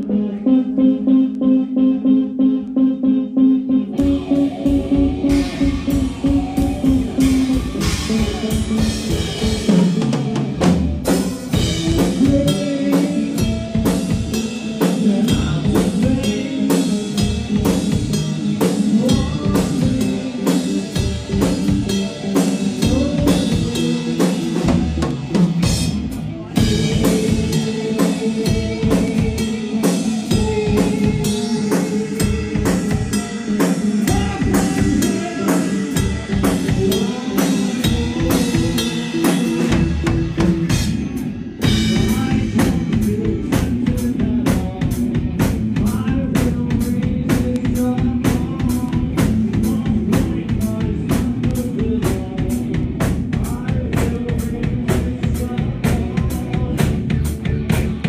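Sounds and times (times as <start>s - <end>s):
electric guitars: 0.0s - 58.0s
drum kit beat: 3.9s - 58.0s.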